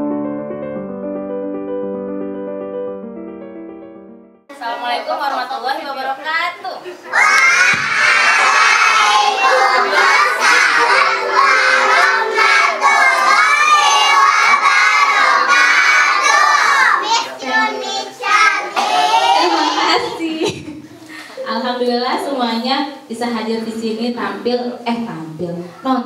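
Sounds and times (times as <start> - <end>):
children shouting and singing: 7.1 - 20.0.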